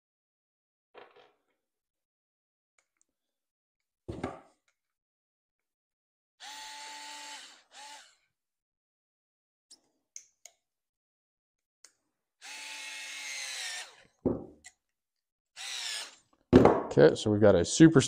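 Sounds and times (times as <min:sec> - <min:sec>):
electric screwdriver driving screw: 0:06.4 - 0:08.2, 0:12.4 - 0:14.1, 0:15.6 - 0:16.3.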